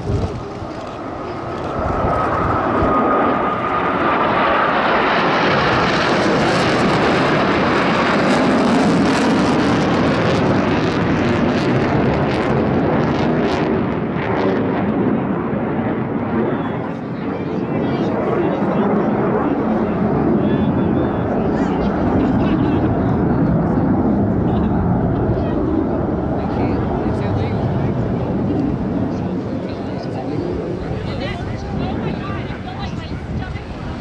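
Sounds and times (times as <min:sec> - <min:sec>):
jet flying past: 0:00.0 - 0:34.0.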